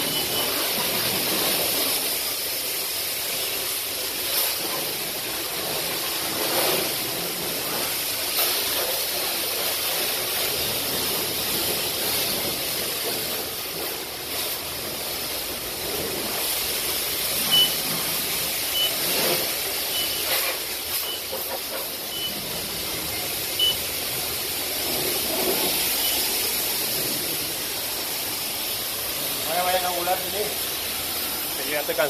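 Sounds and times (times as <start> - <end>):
short high beeps: 0.0 - 0.6, 17.4 - 17.8, 18.7 - 19.1, 19.9 - 20.3, 21.0 - 21.4, 22.1 - 22.4, 23.6 - 23.9, 26.0 - 26.3
pressure washer spraying water: 0.0 - 32.0.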